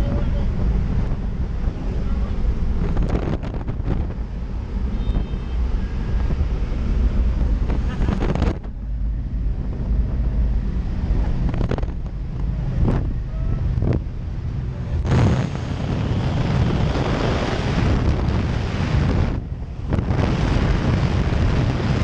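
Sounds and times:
light aircraft engine droning: 0:00.0 - 0:22.0
loud rush of wind: 0:00.0 - 0:22.0.

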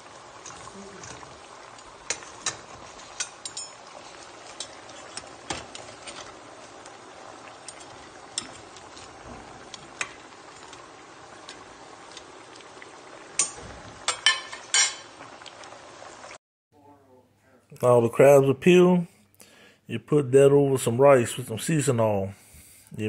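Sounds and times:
crabs sizzling in a pot: 0:00.0 - 0:16.4.

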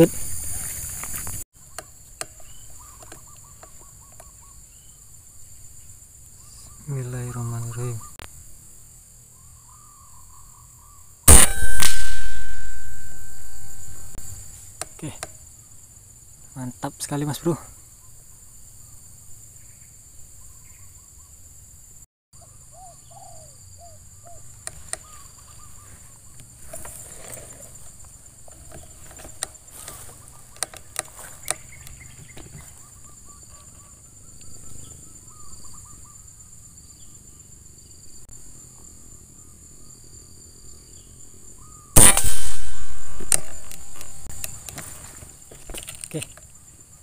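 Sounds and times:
insect drone: 0:00.0 - 0:47.0
faint bird calls: 0:01.6 - 0:05.1, 0:06.4 - 0:08.2, 0:09.3 - 0:14.0, 0:22.4 - 0:27.9, 0:28.5 - 0:36.6
rifle shot ringing: 0:11.3 - 0:14.2, 0:42.0 - 0:44.5.

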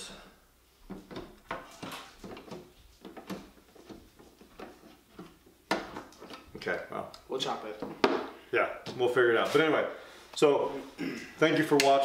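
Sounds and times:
clicks knocks and light rattles: 0:00.9 - 0:08.2.

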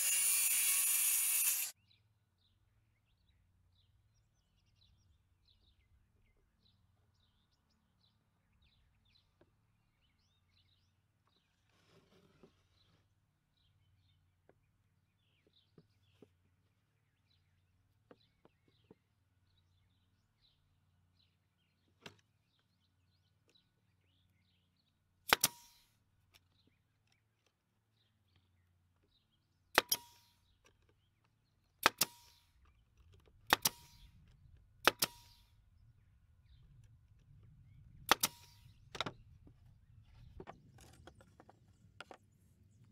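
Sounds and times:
nail gun firing: 0:25.3 - 0:25.9, 0:29.7 - 0:30.4, 0:31.8 - 0:32.5, 0:33.5 - 0:34.1, 0:34.8 - 0:35.5, 0:38.1 - 0:38.7.

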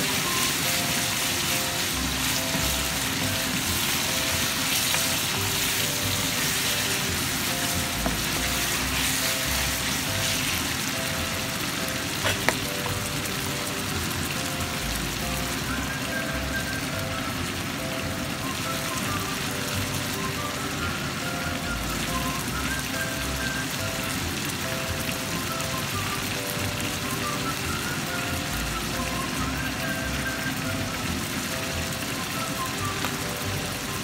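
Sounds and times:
wooden spatula stirring: 0:00.0 - 0:10.9, 0:12.1 - 0:12.9
food sizzling in a frying pan: 0:00.0 - 0:34.0.

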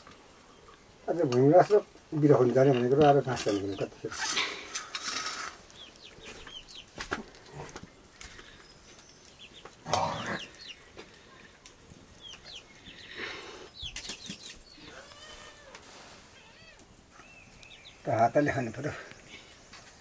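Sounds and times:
chickens clucking: 0:02.2 - 0:18.8
high chirping calls: 0:05.3 - 0:07.0, 0:08.4 - 0:11.5, 0:12.1 - 0:15.5, 0:16.4 - 0:19.6.

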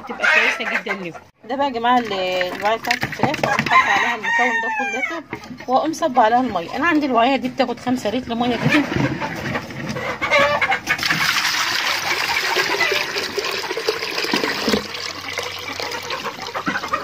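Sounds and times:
chickens clucking: 0:00.0 - 0:11.6, 0:12.2 - 0:13.5, 0:14.8 - 0:17.0
water pouring into plastic drinker: 0:11.0 - 0:17.0.

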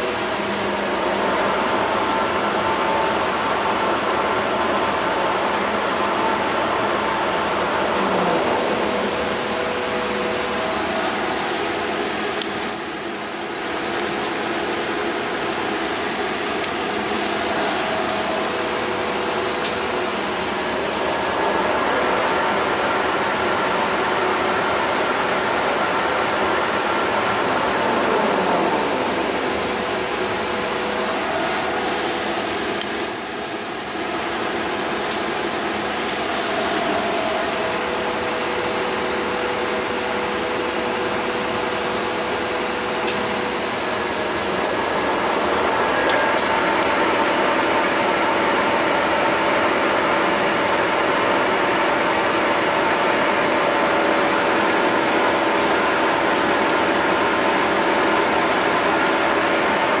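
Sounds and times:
lathe running with whine: 0:00.0 - 1:00.0.

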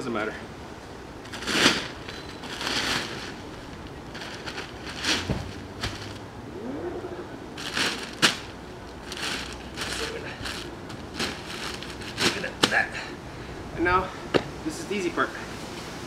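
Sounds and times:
plastic sheeting rustling: 0:01.2 - 0:06.2, 0:07.6 - 0:12.9.

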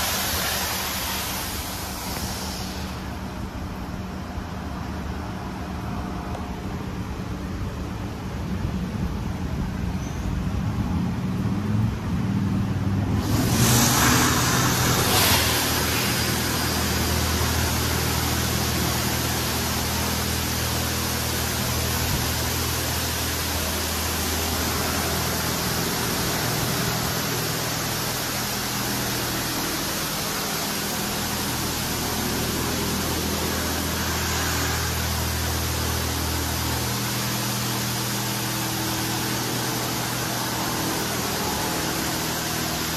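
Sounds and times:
water spray hissing: 0:00.0 - 0:03.4, 0:13.1 - 0:42.9
low machine hum: 0:00.0 - 0:42.9.

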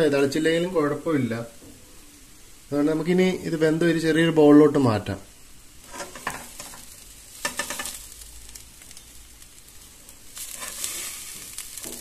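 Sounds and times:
metal spoon scraping a pan: 0:05.8 - 0:08.0, 0:10.4 - 0:12.0.

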